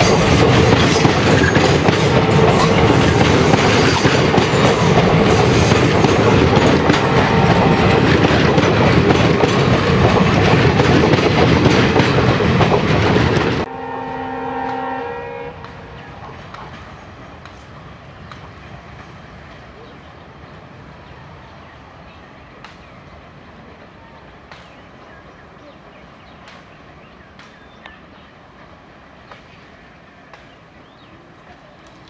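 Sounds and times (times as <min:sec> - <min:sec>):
train wheels clattering on rails: 0:00.0 - 0:13.7, 0:15.6 - 0:21.7, 0:22.4 - 0:25.4, 0:26.2 - 0:32.0
train horn: 0:13.7 - 0:16.1.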